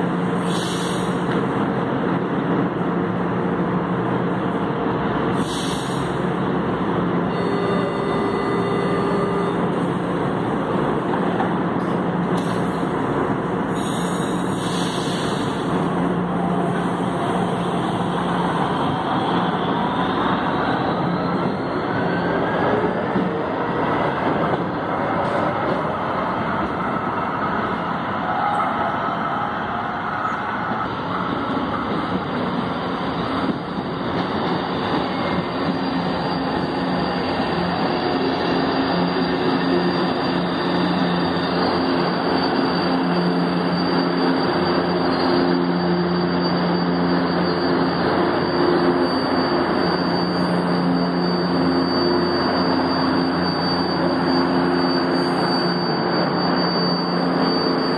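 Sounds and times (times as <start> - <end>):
train whine falling in pitch: 7.2 - 10.8, 24.3 - 57.9.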